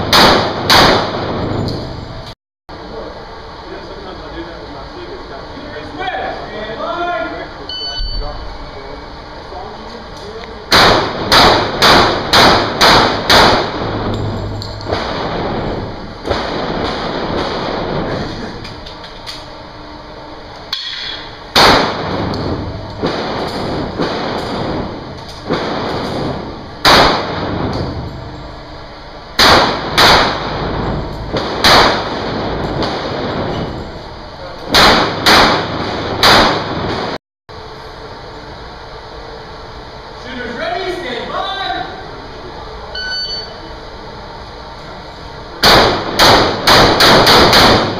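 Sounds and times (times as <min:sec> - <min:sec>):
pistol shots echoing indoors: 0:00.0 - 0:01.5, 0:10.7 - 0:14.0, 0:20.8 - 0:28.0, 0:29.4 - 0:33.8, 0:34.7 - 0:37.2, 0:45.6 - 0:47.9.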